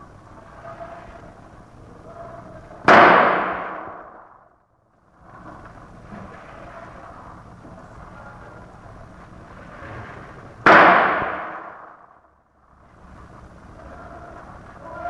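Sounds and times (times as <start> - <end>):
firecracker bang: 2.8 - 4.5, 10.6 - 12.2.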